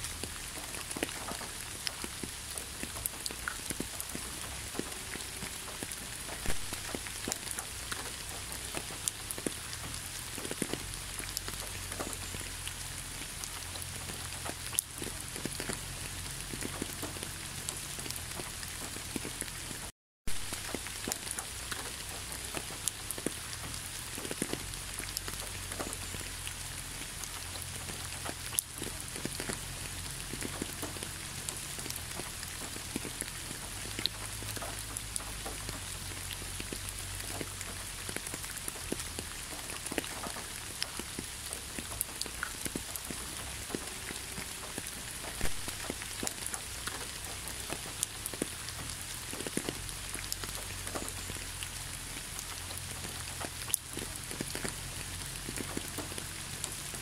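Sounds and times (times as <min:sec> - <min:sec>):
rain on hard surface: 0:00.0 - 0:57.0.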